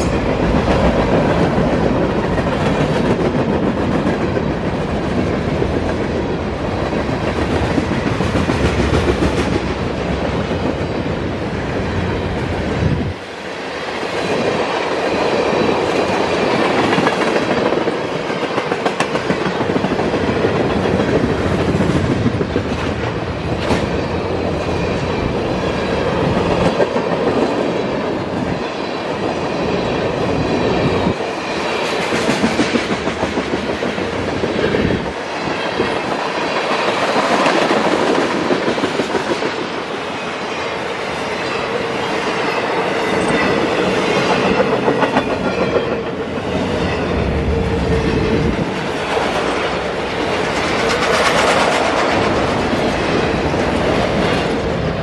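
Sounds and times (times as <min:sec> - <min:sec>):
freight train rolling past: 0:00.0 - 0:55.0.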